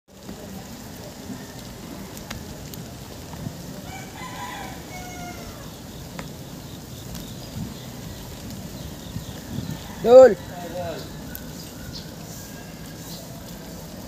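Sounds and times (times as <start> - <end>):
steady outdoor hiss: 0.1 - 14.0
rooster crowing: 3.8 - 5.8, 9.3 - 14.0
faint ticks: 5.6 - 9.4.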